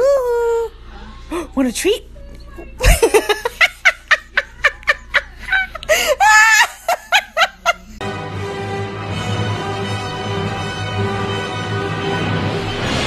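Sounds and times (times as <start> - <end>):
person laughing hard: 2.8 - 8.0
music: 8.0 - 13.0.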